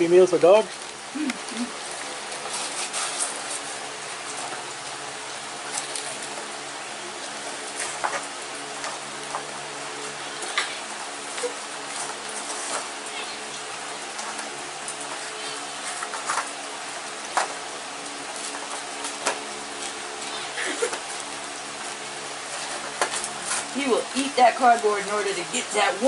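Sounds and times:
steady hiss and hum: 0:00.0 - 0:26.0
dog tearing cardboard: 0:02.3 - 0:03.8.

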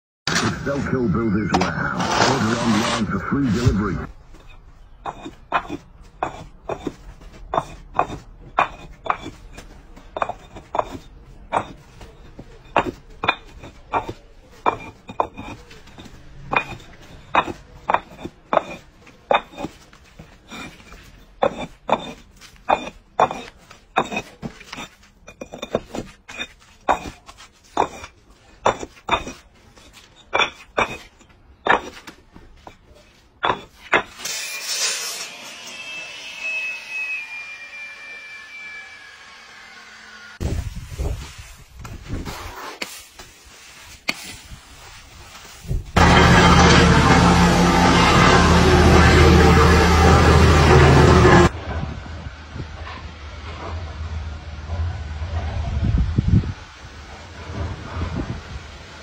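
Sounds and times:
block-cutting saw: 0:00.3 - 0:04.1, 0:10.2 - 0:27.2, 0:33.5 - 0:40.6, 0:46.0 - 0:51.5
paving blocks knocking together: 0:04.3 - 0:34.2.

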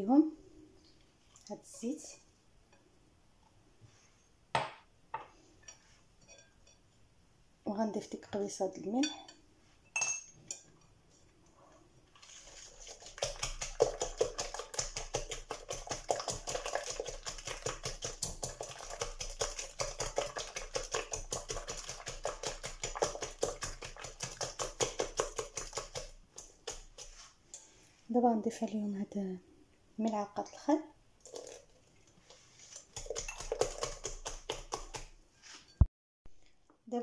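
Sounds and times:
whisk tapping glass bowl: 0:05.7 - 0:06.8, 0:12.8 - 0:27.6, 0:32.7 - 0:35.1.

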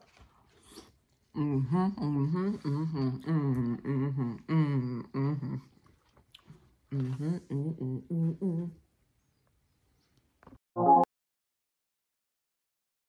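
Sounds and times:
woman humming: 0:01.4 - 0:05.7, 0:06.9 - 0:08.8.

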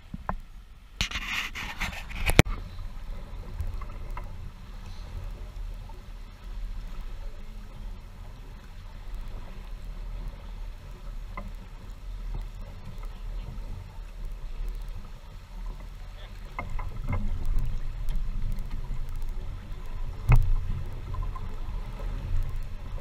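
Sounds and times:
wind rumble on microphone: 0:00.0 - 0:23.0
hull rushing through water: 0:00.8 - 0:23.0.

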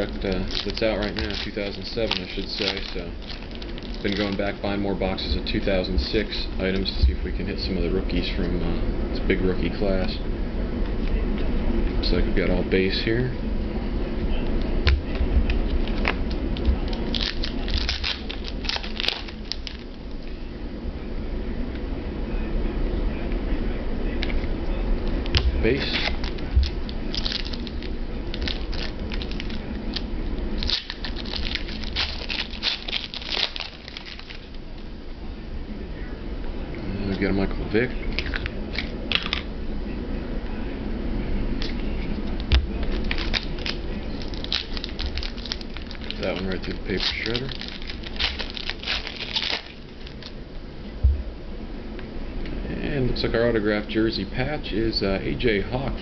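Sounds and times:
cards rustling and clicking: 0:00.0 - 0:04.6, 0:15.7 - 0:19.9, 0:25.4 - 0:34.6, 0:41.6 - 0:50.3
steady low hum: 0:00.0 - 0:56.0.

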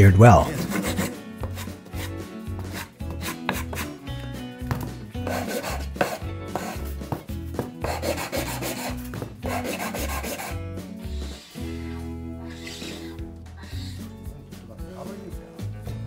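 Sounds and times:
background music: 0:00.0 - 0:16.0
wood rubbing on wood: 0:00.5 - 0:04.0, 0:04.7 - 0:10.6.

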